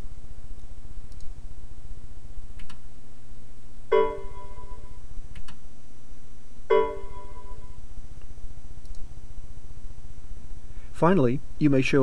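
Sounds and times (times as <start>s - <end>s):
low hum: 0.0s - 11.6s
faint clicks: 0.5s - 1.4s, 2.6s - 2.8s, 5.3s - 5.6s, 8.2s - 9.1s
chime alert tones: 3.9s - 5.0s, 6.7s - 7.7s.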